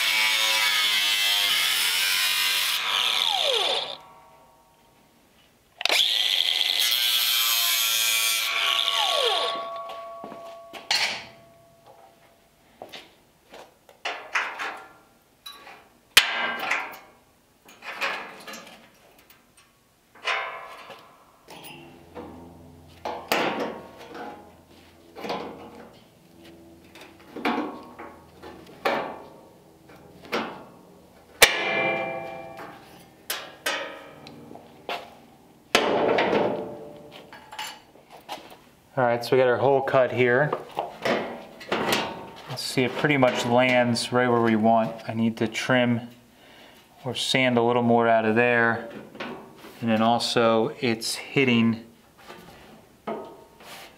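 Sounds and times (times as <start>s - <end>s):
power drill boring through metal: 0.0s - 4.0s, 5.8s - 9.8s
knocks and scrapes on metal: 35.7s - 37.8s.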